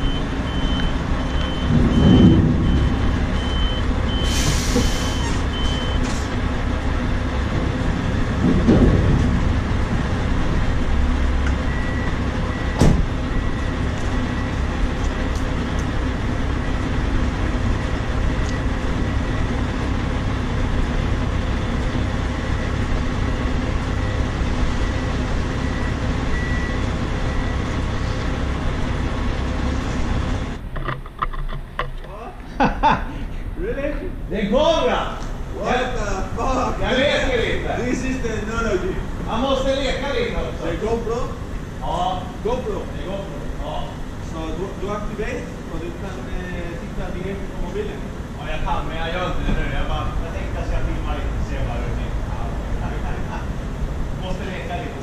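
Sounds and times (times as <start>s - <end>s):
high-pitched reversing alarm: 0.0s - 4.4s
low-pitched reversing alarm: 0.0s - 4.4s, 11.2s - 20.1s, 21.5s - 28.2s
diesel truck engine idling: 0.0s - 30.9s
air brake hiss: 4.2s - 6.3s.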